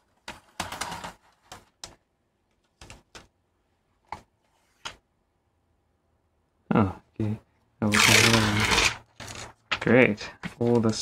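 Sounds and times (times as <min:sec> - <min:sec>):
plastic film being peeled: 0:07.9 - 0:09.5.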